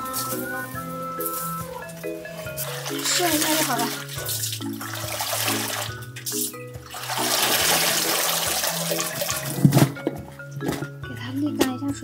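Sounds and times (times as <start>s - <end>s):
background music: 0.0s - 12.0s
water splashing in metal basin: 1.9s - 11.0s.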